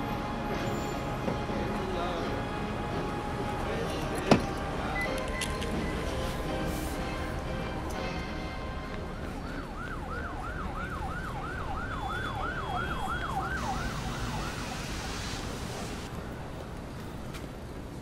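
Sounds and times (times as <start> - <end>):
siren yelping: 9.6 - 15.2.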